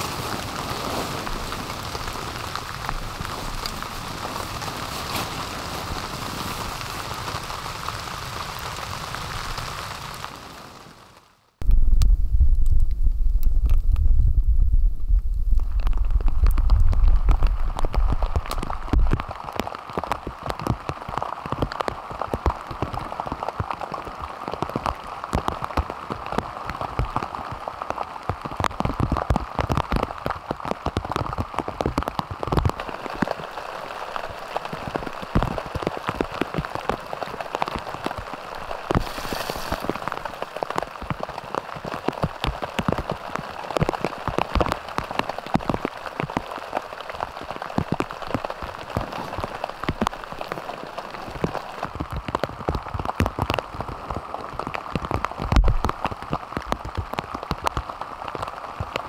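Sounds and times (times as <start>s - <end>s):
rain on a tarp roof: 0.0s - 59.0s
low rumble: 11.6s - 19.2s.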